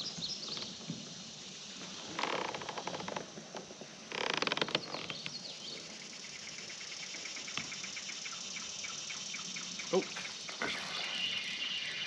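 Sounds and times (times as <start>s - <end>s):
bird chirp: 4.7s - 12.0s.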